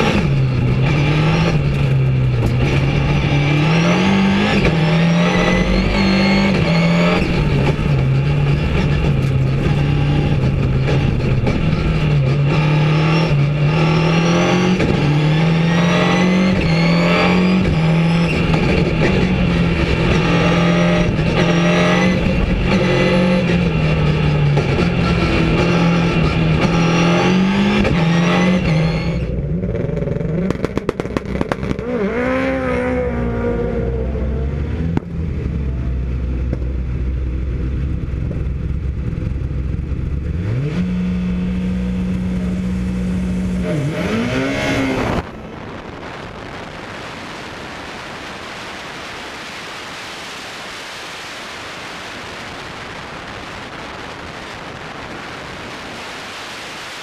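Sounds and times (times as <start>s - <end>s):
race car engine revving hard: 0.0s - 36.1s, 39.7s - 47.4s.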